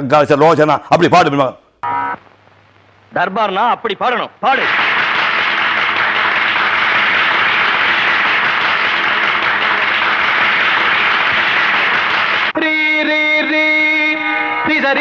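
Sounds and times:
audience applauding: 4.6s - 12.6s.

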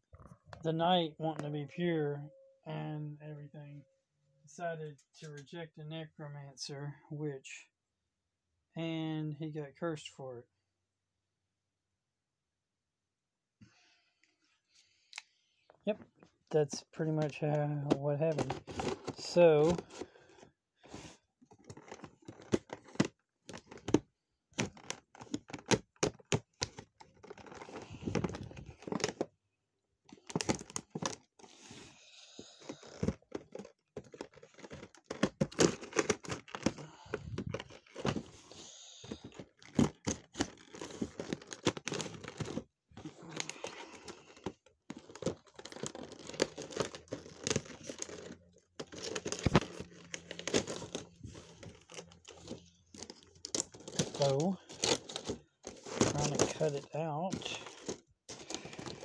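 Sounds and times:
plastic crinkling: 39.0s - 59.0s.

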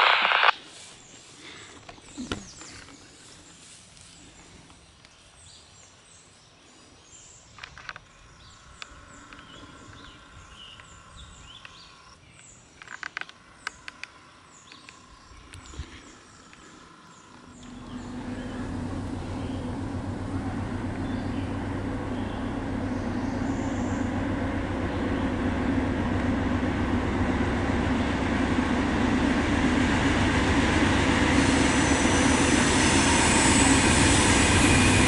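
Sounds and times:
leaves rustling: 2.6s - 4.6s
diesel locomotive rumble: 8.2s - 12.2s, 13.3s - 35.0s.

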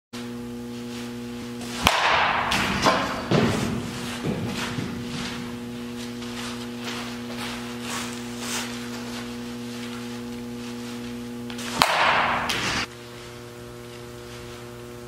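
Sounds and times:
electrical mains hum: 0.2s - 15.0s
aluminum bat hitting ball: 1.6s - 5.2s, 11.7s - 12.9s.

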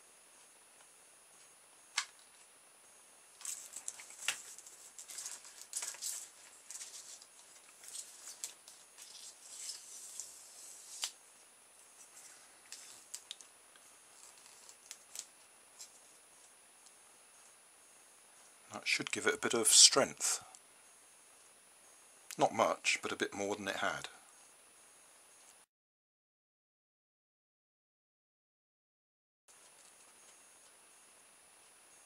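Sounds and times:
scratchy rustling: 3.4s - 11.1s.

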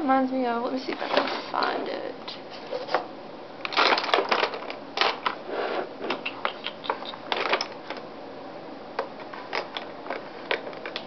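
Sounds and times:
makeup clicking and rattling: 9.5s - 11.0s.

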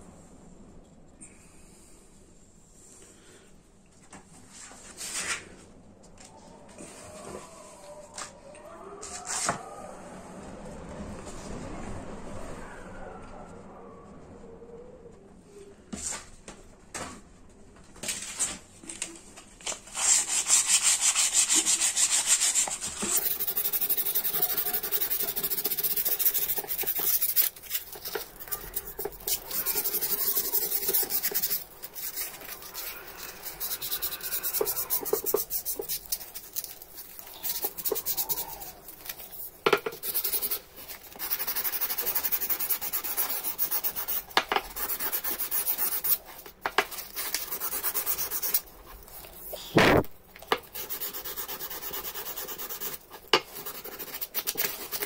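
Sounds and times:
abrasive pad rubbing wood: 20.1s - 38.8s.

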